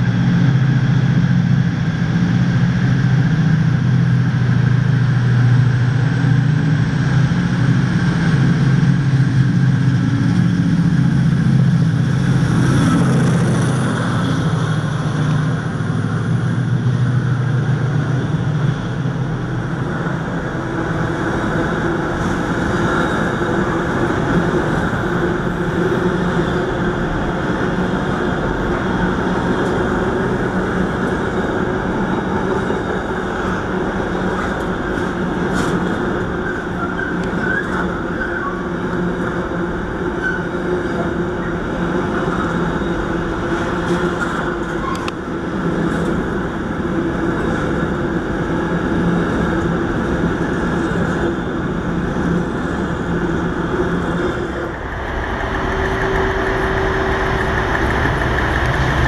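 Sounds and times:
train wheels rumbling on rail: 0.0 - 59.0
train wheel squeaks: 40.0 - 45.1.

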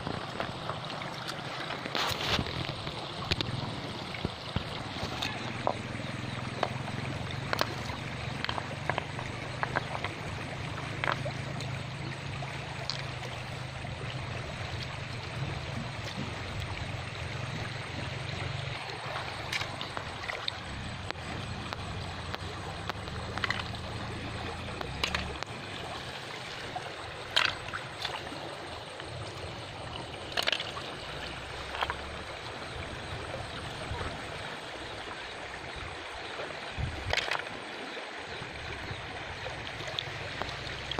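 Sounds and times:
shallow river over stones: 0.0 - 40.9
stones clicking in water: 6.6 - 11.7, 12.8 - 13.1, 19.4 - 25.5, 27.3 - 28.2, 30.3 - 30.9, 37.0 - 37.6.

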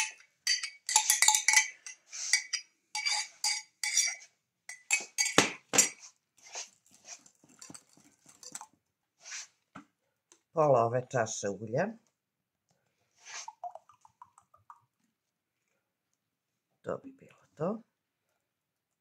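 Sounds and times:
whisk clinking against glass bowl: 0.0 - 5.9.

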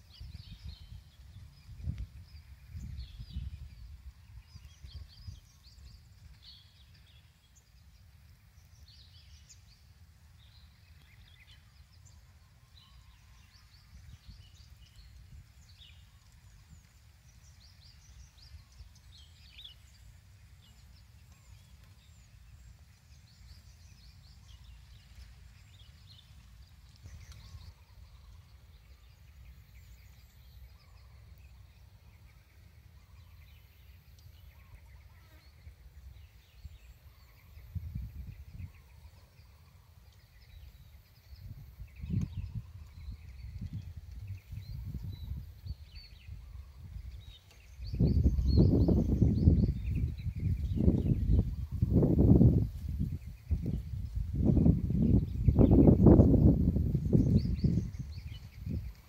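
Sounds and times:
wind on microphone: 0.0 - 7.8, 10.4 - 20.0, 34.5 - 59.0
bird chirps: 0.0 - 59.0.

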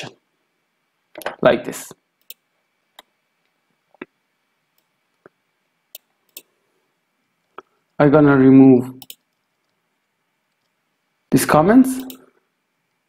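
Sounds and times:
mouse and keyboard clicks: 9.0 - 9.8, 12.0 - 12.2.

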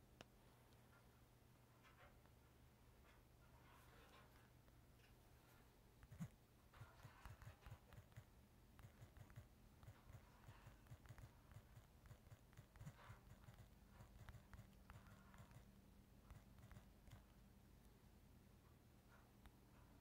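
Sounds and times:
faint low hum: 0.0 - 20.0
fingers tapping touchscreen: 6.0 - 17.3.

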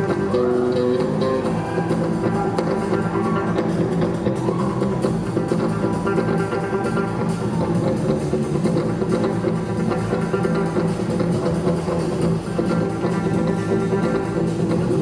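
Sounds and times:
drum kit beat: 0.0 - 15.0
electric bass guitar: 0.0 - 15.0
electric guitar chords: 0.0 - 15.0.

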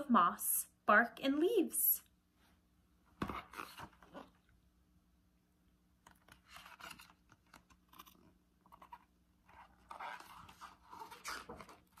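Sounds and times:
paper pages rustling: 6.0 - 12.0.

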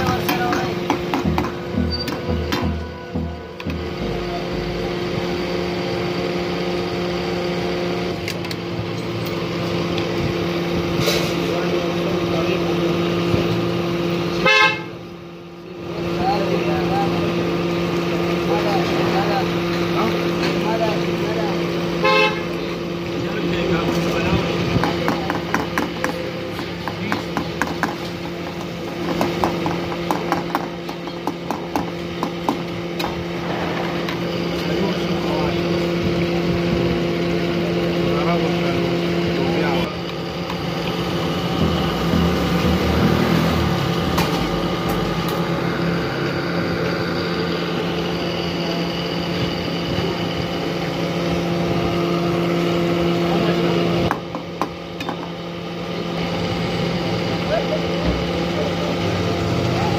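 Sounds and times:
low hum: 0.0 - 9.3, 39.0 - 48.7
motor running steadily: 0.0 - 59.9.

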